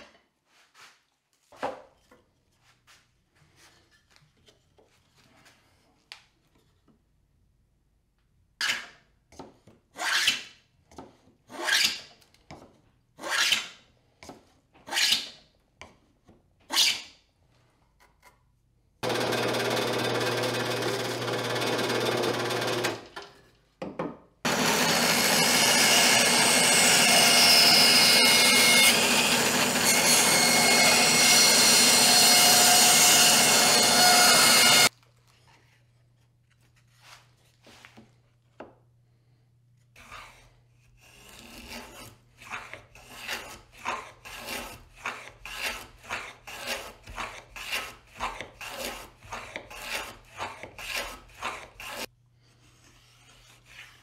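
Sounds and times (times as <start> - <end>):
drill press boring wood: 19.0 - 23.1, 24.5 - 34.9
hand plane cutting wood: 24.5 - 34.9, 41.0 - 52.1.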